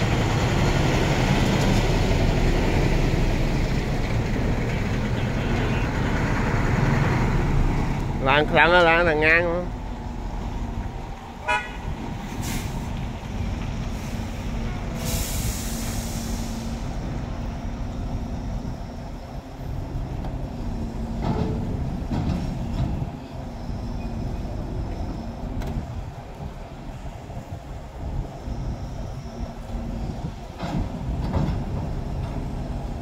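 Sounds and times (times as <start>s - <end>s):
truck diesel engine idling: 2.0s - 11.7s
short horn toot: 11.4s - 11.9s
air hiss: 12.3s - 13.0s, 13.9s - 17.3s.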